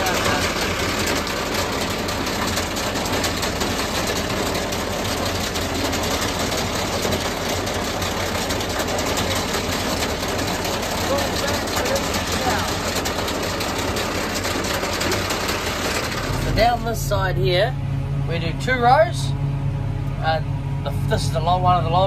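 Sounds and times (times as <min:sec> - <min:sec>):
fast mechanical clatter: 0:00.0 - 0:17.3
tractor engine running: 0:00.0 - 0:22.0.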